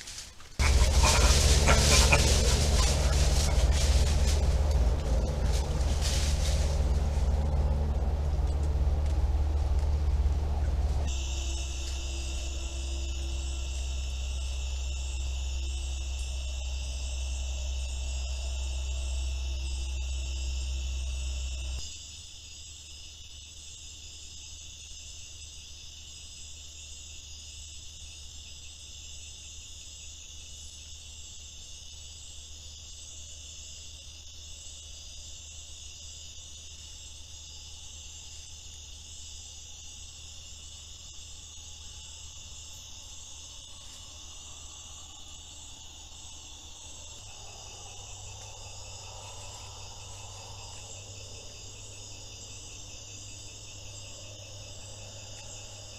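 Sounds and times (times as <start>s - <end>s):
crickets and insects trilling: 0.0s - 55.9s
faint low calling: 0.6s - 21.8s
low steady hum: 0.6s - 21.8s, 36.7s - 55.9s.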